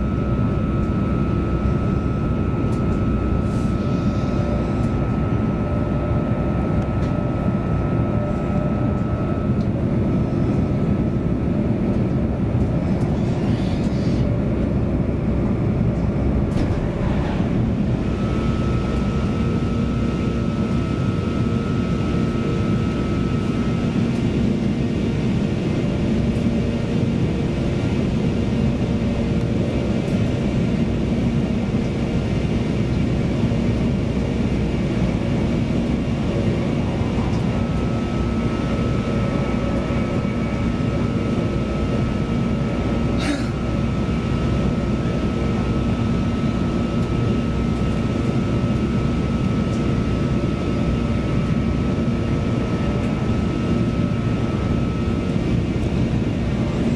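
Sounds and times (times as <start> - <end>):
thin steady whine: 0.0 - 56.9
train wheels rumbling on rails: 11.9 - 19.6.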